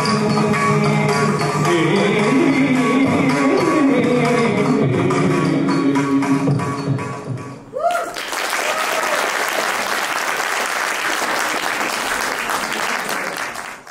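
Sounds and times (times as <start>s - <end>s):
audience applause: 7.9s - 13.9s.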